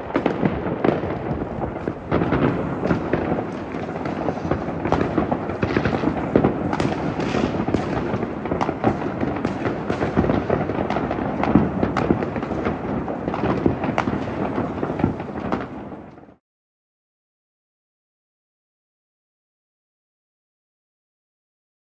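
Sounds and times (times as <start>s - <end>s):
fireworks rumble of bangs: 0.0s - 16.4s
sharp firework cracks: 0.0s - 16.4s.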